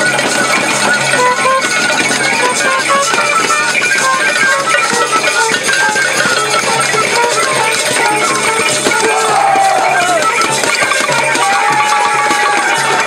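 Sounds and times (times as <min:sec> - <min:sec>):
clicking hand percussion: 0:00.0 - 0:13.0
flute: 0:00.0 - 0:13.0
brass horn melody: 0:01.1 - 0:05.1.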